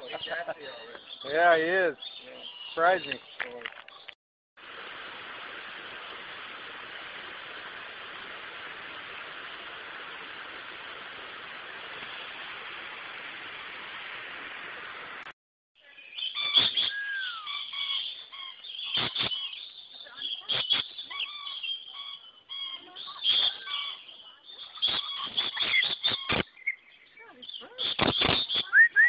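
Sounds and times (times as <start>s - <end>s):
lorikeets chirping and screeching: 0.0s - 3.4s, 15.9s - 29.0s
steady hiss: 4.6s - 15.3s, 16.5s - 19.6s.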